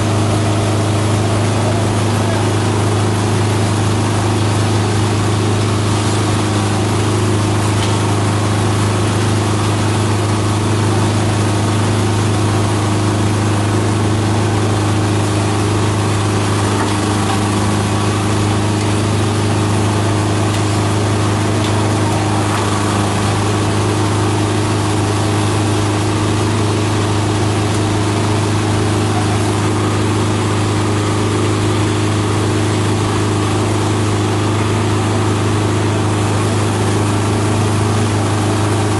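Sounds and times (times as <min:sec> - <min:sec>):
shredder machine chopping plants: 0:00.0 - 0:38.9.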